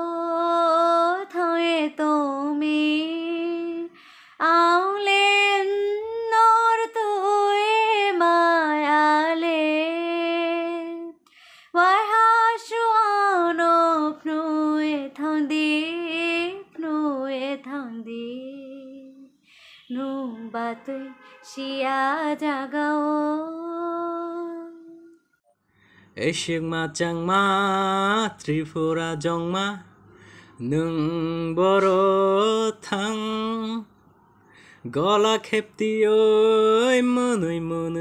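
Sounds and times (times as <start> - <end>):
singer breathing: 4.0 - 4.4, 11.3 - 11.8, 19.4 - 19.9, 25.7 - 26.2, 29.9 - 30.6, 34.3 - 34.9.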